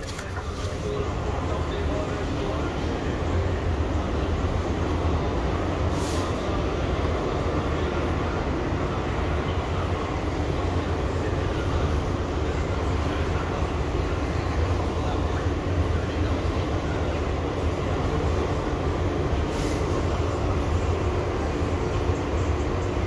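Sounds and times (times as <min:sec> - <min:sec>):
brief hiss: 0:05.9 - 0:06.4, 0:19.5 - 0:20.0.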